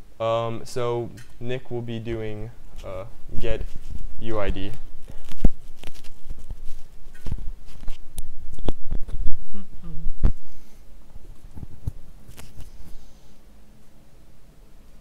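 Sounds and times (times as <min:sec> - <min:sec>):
lapel microphone handling noise: 0:02.8 - 0:13.0.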